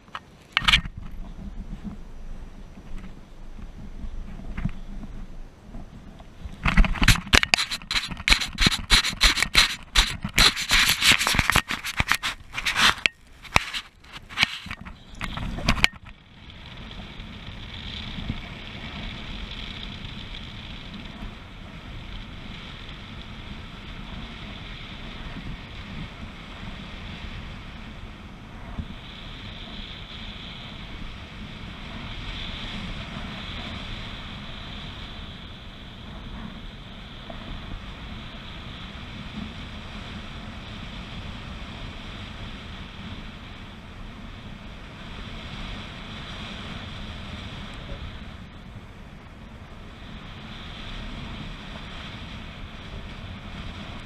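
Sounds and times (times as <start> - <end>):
wind noise on camera: 0.0 - 54.0
harness scraping through grass: 6.5 - 15.9.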